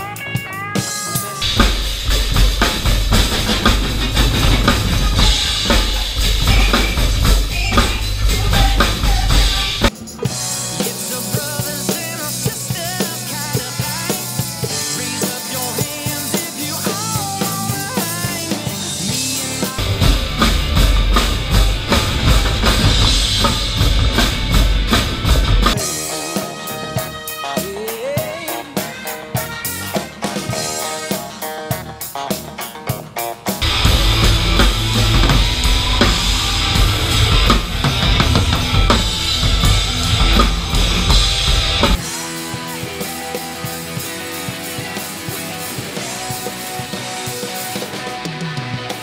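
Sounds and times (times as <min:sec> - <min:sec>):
electric guitar notes ringing: 0:00.0 - 0:10.9, 0:19.0 - 0:46.1
live rock band: 0:00.0 - 0:49.0
bass drum and snare strokes: 0:01.4 - 0:11.5, 0:17.0 - 0:27.7, 0:33.6 - 0:42.3.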